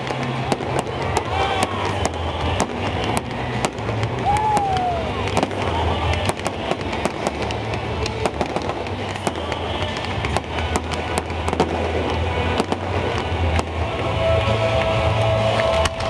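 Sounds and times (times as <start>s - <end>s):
firework whistle: 0.0s - 14.6s
fireworks bangs and crackles: 0.0s - 16.0s.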